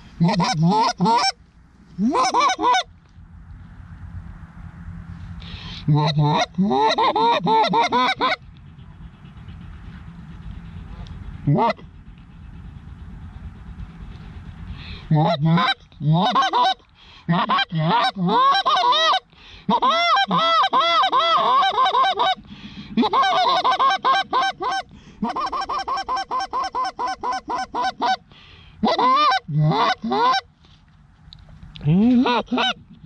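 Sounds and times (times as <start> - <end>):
goose call honks and clucks: 0.0 - 2.9, 5.4 - 9.5, 11.0 - 12.1, 13.8 - 30.5, 31.8 - 33.0.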